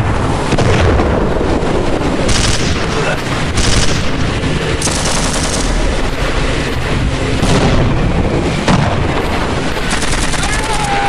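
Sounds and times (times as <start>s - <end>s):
steady low rumble: 0.0s - 11.0s
machine-gun fire: 2.3s - 5.9s, 7.4s - 7.9s, 9.8s - 10.8s.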